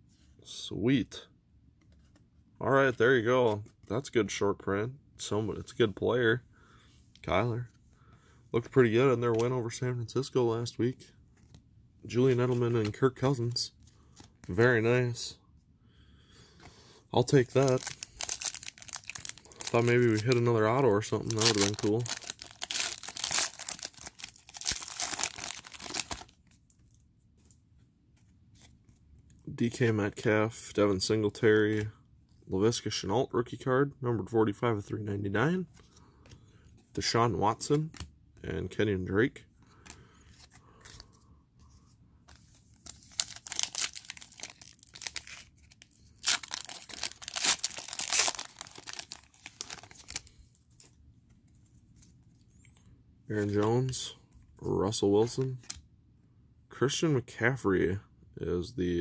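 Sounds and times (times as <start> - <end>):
foil pack crinkling and tearing: 17.2 - 26.4, 42.8 - 50.5.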